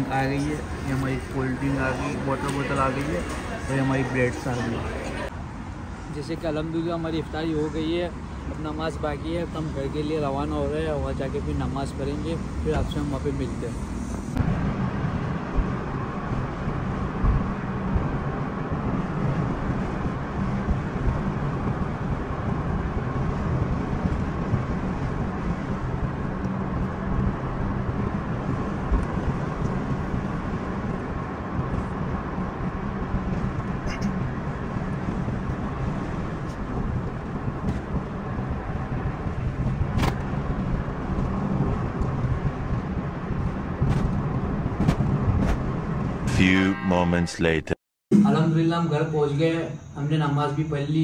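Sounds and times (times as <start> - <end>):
car cabin road rumble: 14.1 - 46.3.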